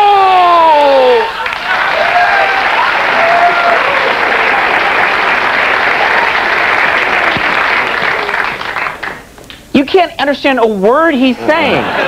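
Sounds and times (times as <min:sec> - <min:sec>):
audience applauding: 0:01.1 - 0:09.3.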